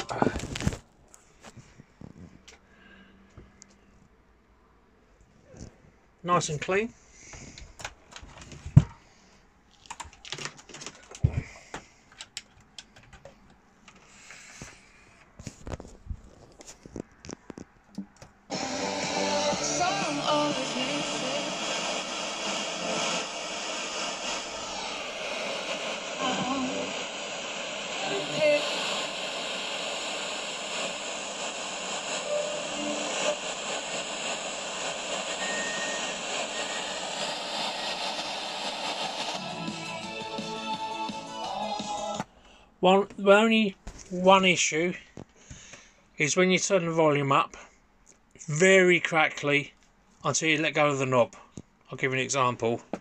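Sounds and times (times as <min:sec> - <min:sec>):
radio static hiss: 0:00.0 - 0:00.8, 0:18.5 - 0:42.2.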